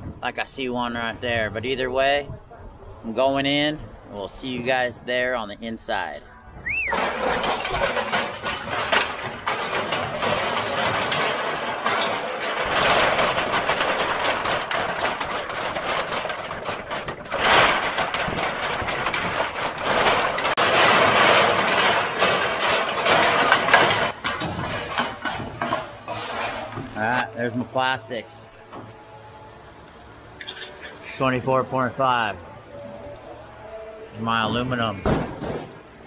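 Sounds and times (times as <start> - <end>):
aluminum cans clattering into metal hopper: 6.9 - 27.3, 35.0 - 35.8.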